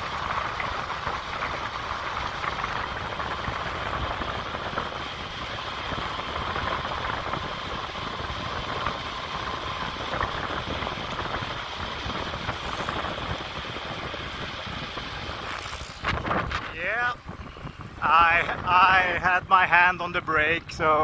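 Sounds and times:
bicycle rumbling and rattling: 0.0 - 21.0.

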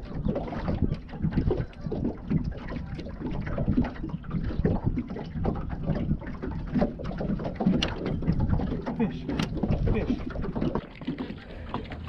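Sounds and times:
water lapping against hull: 0.0 - 12.0
wind on microphone: 0.0 - 12.0
knocks on boat: 7.6 - 10.0.

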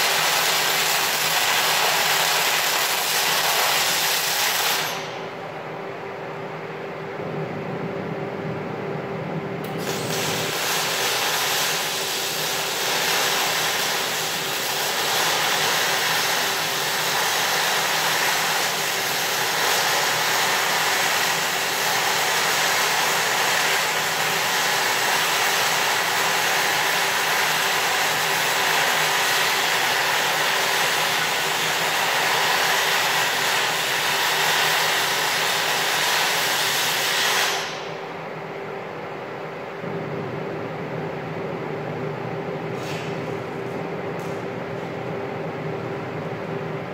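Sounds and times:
welding arc crackling hiss: 0.0 - 5.2, 9.7 - 38.1.

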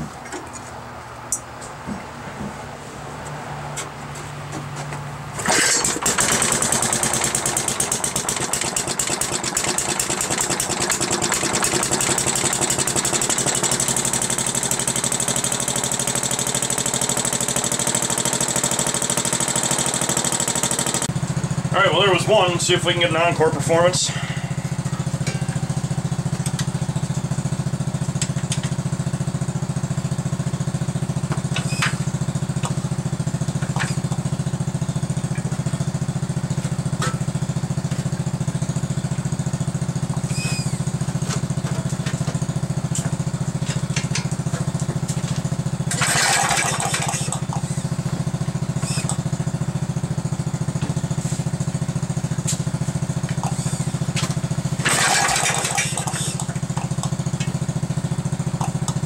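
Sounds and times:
clicks and knocks on engine: 4.6 - 21.1, 41.2 - 48.2, 52.3 - 57.8, 58.4 - 59.0
small engine idling: 5.4 - 59.0.

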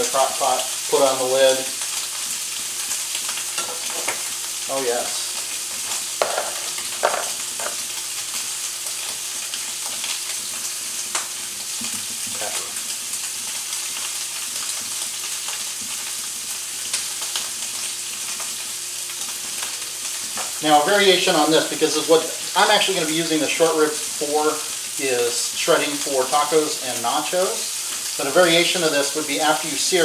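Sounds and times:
meat sizzling with pops: 0.0 - 30.0.

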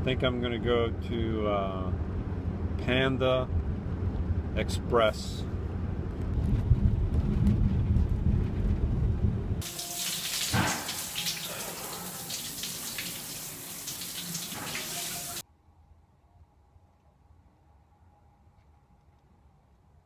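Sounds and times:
car road noise rumble: 0.0 - 9.7
shower spraying water: 9.6 - 15.4.

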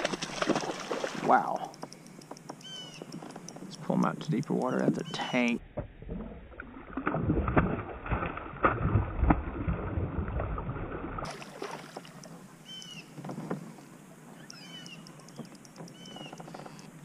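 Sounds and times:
fish thrashing and splashing: 0.0 - 1.3, 6.6 - 12.2
fishing rod and reel knocks: 1.6 - 5.4, 14.5 - 16.9
faint high chirps: 12.6 - 13.1, 14.3 - 16.9.

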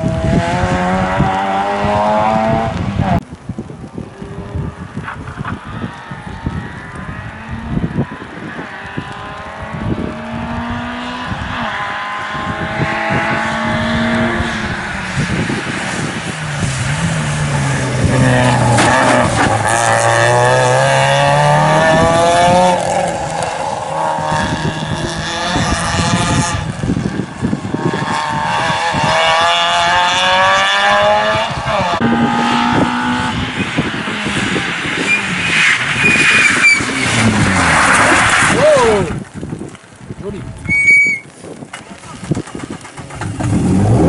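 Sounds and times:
rally car engine revving through gears: 0.0 - 3.2, 8.7 - 15.2, 16.6 - 26.8, 27.7 - 38.5, 42.2 - 44.0.

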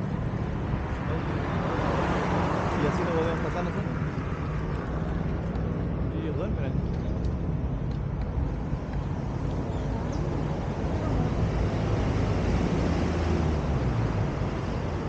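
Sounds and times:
road traffic: 0.0 - 15.0.

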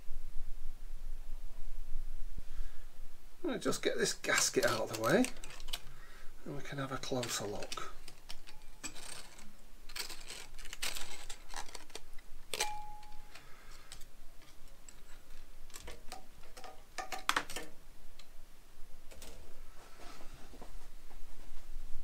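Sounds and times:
gasket clicking and rustling: 4.2 - 5.9, 6.8 - 18.3.

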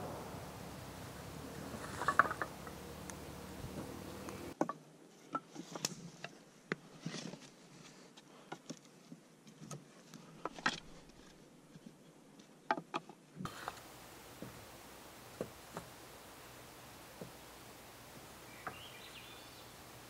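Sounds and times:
wooden sticks knocking and scraping: 1.7 - 2.8, 3.6 - 14.7.

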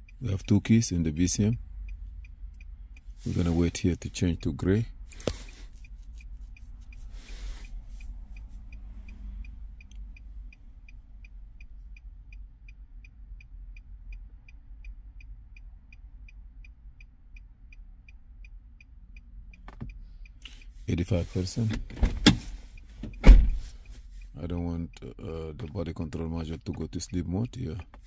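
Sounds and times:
hazard light flasher ticking: 0.0 - 20.7
low rumble inside car: 0.0 - 28.0.

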